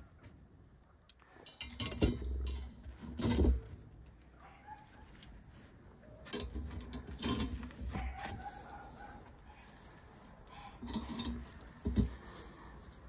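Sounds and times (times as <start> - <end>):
chain links rattling on hooks: 1.4 - 3.7, 6.3 - 7.8.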